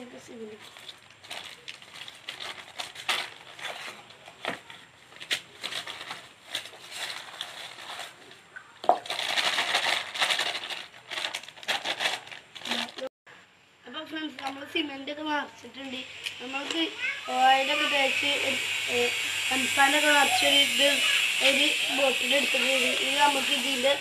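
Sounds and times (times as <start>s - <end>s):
plastic bag crinkling: 0.2s - 13.1s.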